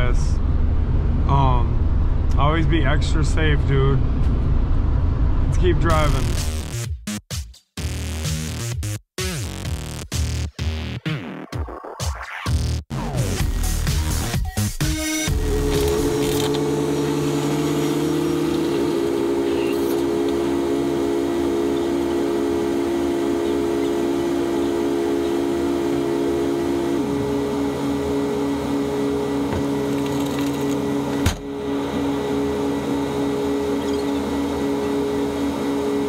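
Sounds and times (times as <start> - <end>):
forklift machine hum: 15.3 - 36.0.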